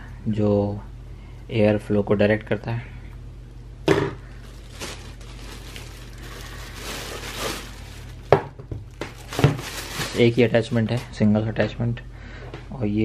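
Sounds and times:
plastic bag crinkling: 4.2 - 11.0.

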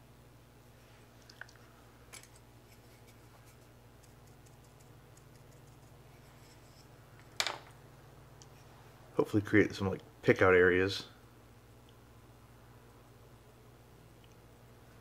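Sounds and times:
steady low hum: 0.0 - 15.0
paintbrush scratching and clicking: 2.7 - 6.9.

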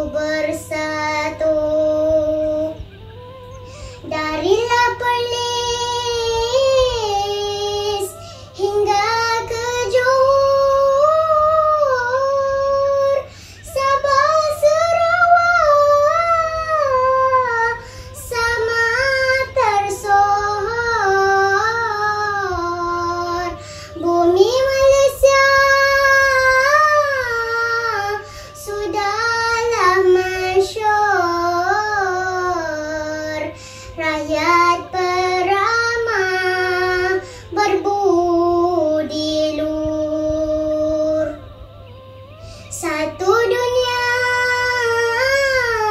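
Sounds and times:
short breaths: 3.6 - 4.0, 13.3 - 13.6, 17.8 - 18.2, 23.6 - 24.0, 28.2 - 28.6, 33.5 - 34.0, 42.3 - 42.7.

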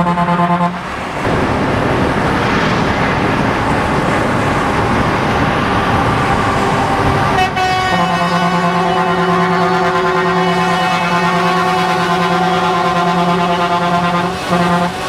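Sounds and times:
wind and road noise: 0.0 - 15.0
truck horn chord: 7.4 - 15.0.

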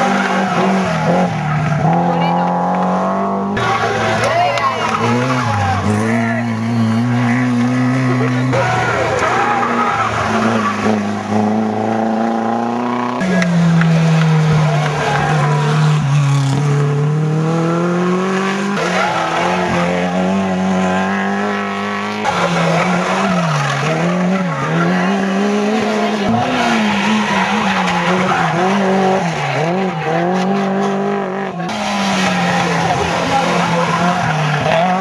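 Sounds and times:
rally car engines revving: 0.0 - 35.0
tyre squeal: 21.5 - 30.9.

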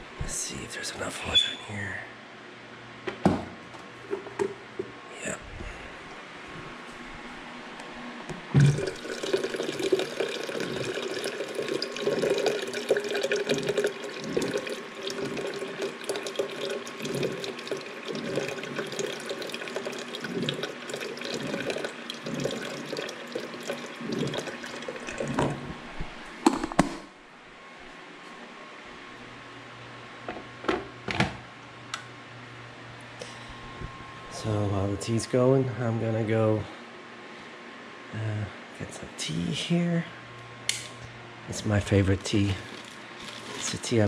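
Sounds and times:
water pouring into kettle: 8.6 - 25.6, 42.6 - 44.0.

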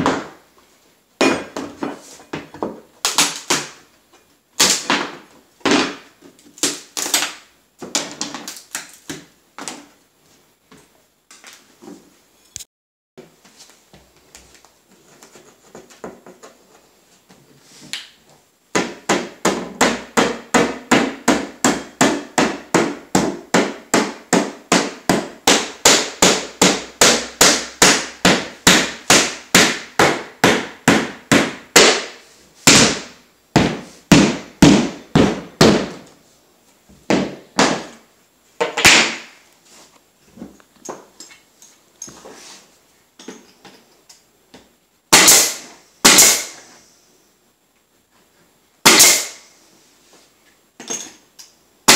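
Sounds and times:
rubber mallet tapping wood boards: 18.7 - 36.0.

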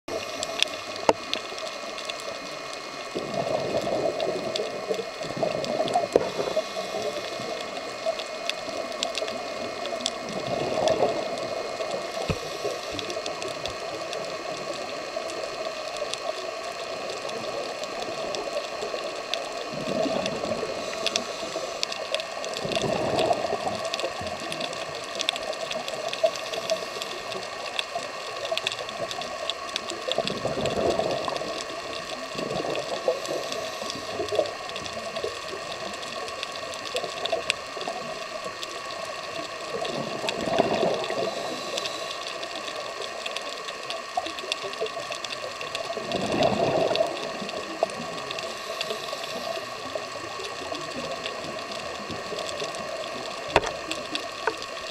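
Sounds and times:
steady underwater hiss: 0.1 - 54.9
diver's exhaled bubbles rushing: 22.6 - 23.7.

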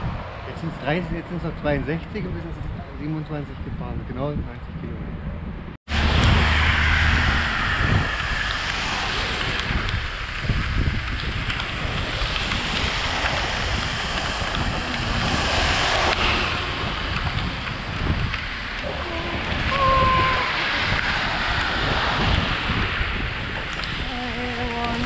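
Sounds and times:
wind rushing over microphone: 0.0 - 25.0
tyres hissing on wet road: 5.9 - 24.8
cars swishing past: 5.9 - 25.0.

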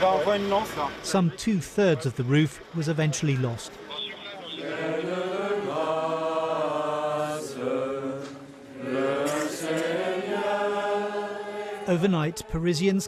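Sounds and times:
crowd singing slow held notes: 4.5 - 12.6.

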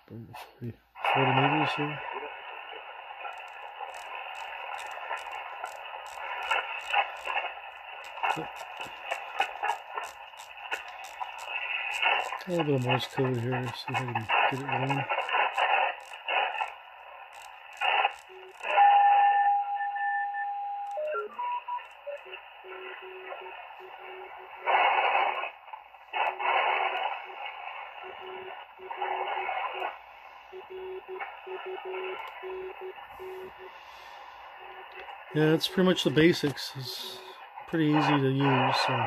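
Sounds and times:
radio hiss: 0.0 - 39.0
loud bursts of radio noise: 1.0 - 19.0, 21.8 - 39.0
morse code tone: 17.8 - 24.7, 27.3 - 29.4, 30.5 - 33.8.

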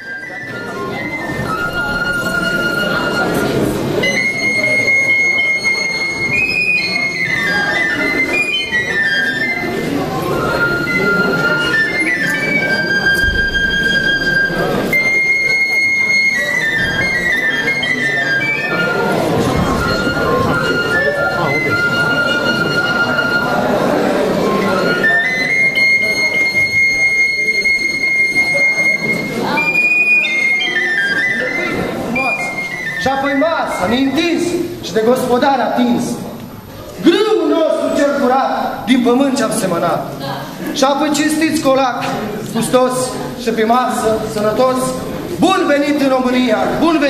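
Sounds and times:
flute-like folk melody: 0.0 - 35.0
crowd murmur in a hall: 0.0 - 47.0.

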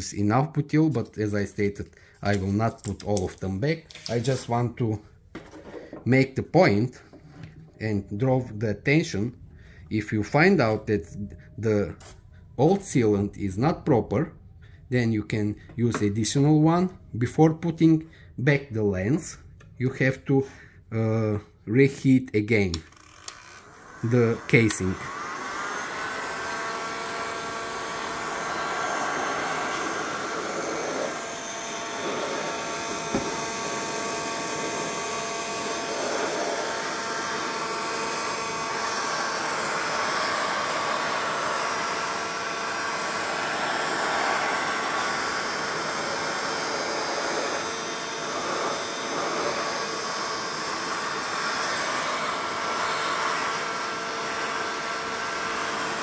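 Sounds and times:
heat gun fan whining: 22.5 - 56.0.

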